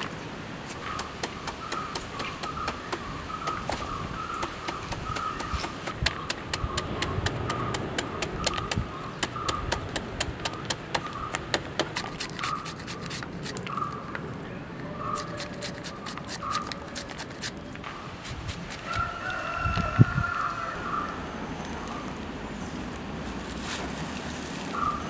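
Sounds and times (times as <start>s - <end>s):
knife chopping fruit: 0.7s - 13.6s.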